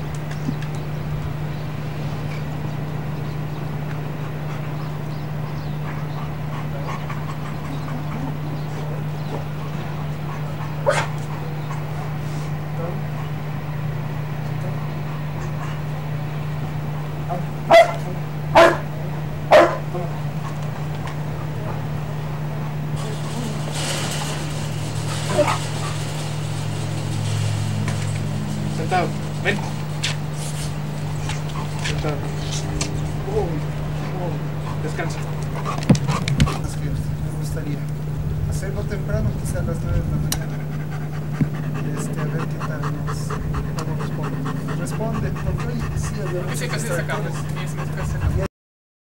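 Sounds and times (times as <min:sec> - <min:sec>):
constant hiss: 0:00.0 - 0:48.2
steady low hum: 0:00.0 - 0:48.5
dog barking: 0:05.8 - 0:13.4, 0:17.2 - 0:20.6.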